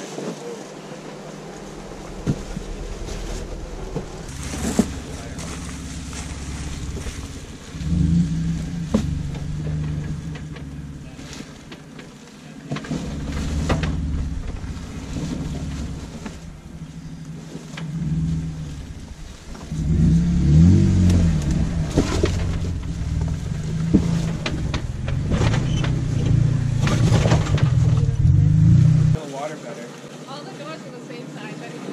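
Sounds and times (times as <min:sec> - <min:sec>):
vehicle engine revving: 0:00.6 - 0:29.2.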